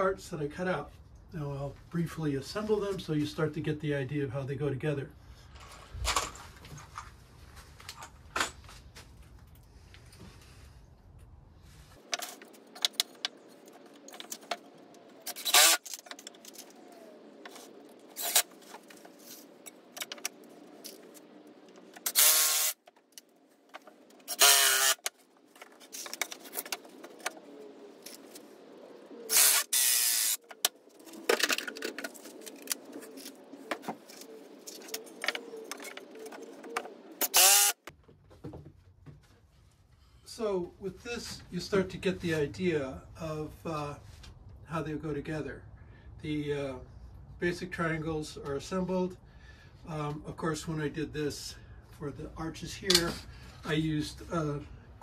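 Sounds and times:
cordless drill whirring: 15.3 - 15.9, 22.0 - 22.8, 24.3 - 25.1, 29.3 - 30.4, 37.2 - 37.9.

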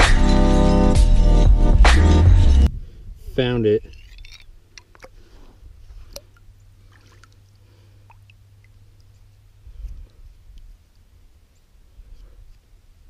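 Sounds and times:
water dripping and splashing: 3.8 - 5.2, 6.0 - 9.5.

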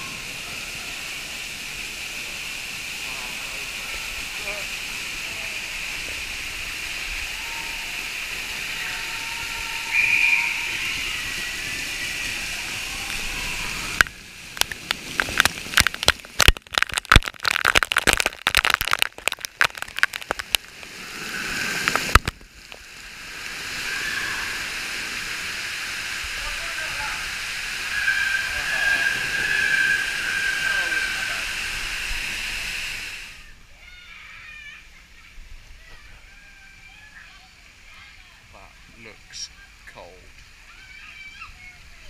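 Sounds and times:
waterfall splashing hiss: 0.0 - 42.0
water cracking on camera: 9.4 - 23.6.

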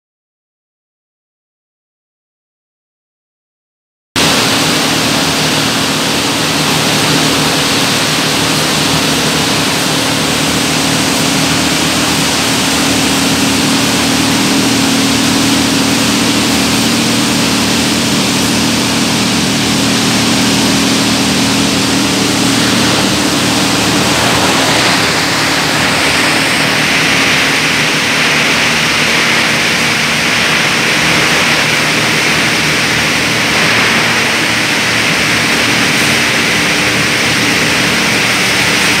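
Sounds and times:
industrial machinery din with hum: 4.2 - 39.0
high hissing noise: 19.6 - 39.0.

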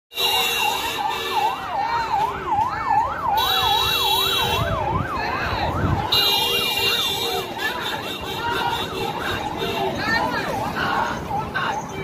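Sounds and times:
police siren yelping: 0.4 - 7.8.

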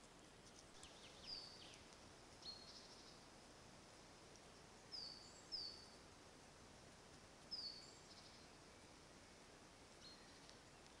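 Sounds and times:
small bird chirping: 0.0 - 3.3, 4.3 - 6.0, 7.4 - 9.0, 9.9 - 11.0
faint steady hiss: 0.0 - 11.0.

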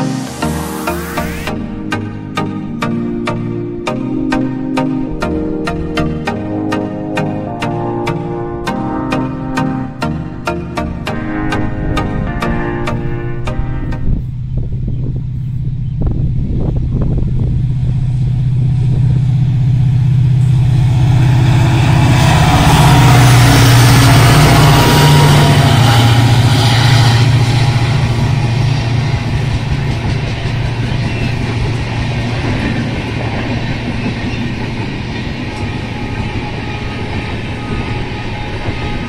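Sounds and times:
locomotive engine working hard: 10.4 - 39.0
train wheels on rails: 13.6 - 39.0.

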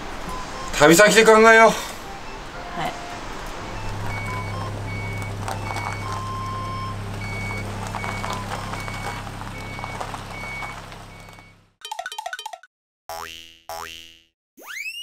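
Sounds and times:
van engine hum: 0.0 - 11.8
reversing alarm beeps: 0.3 - 11.6.

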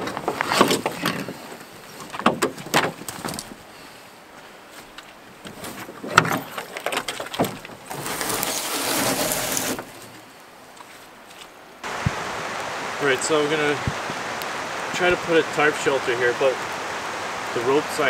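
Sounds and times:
dry brush cracking underfoot: 4.3 - 11.6
canoe hull scraping on bank: 4.7 - 10.3
rain hissing: 7.9 - 10.1, 11.8 - 18.0.

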